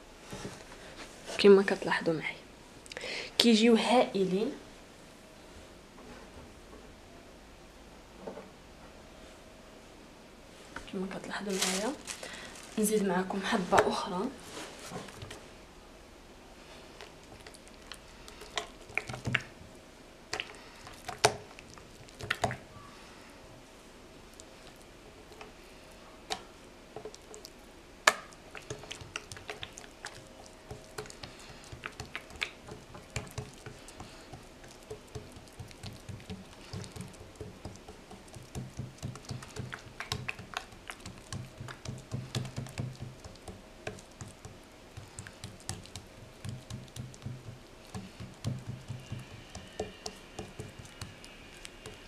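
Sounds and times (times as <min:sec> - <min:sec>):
hands slapping dough: 0:17.0 - 0:19.6, 0:20.3 - 0:22.6, 0:28.1 - 0:52.0.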